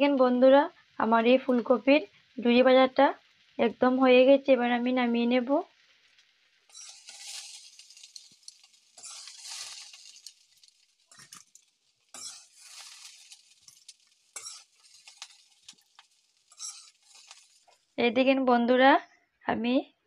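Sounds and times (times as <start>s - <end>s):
spatula scraping a steel wok: 6.6s - 18.0s.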